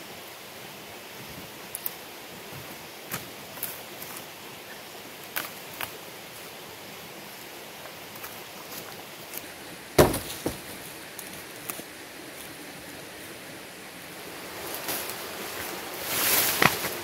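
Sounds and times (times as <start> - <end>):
outdoor hiss: 0.0 - 17.0
rustling in dry leaves: 0.0 - 17.0
log dropped onto logs: 9.9 - 10.9.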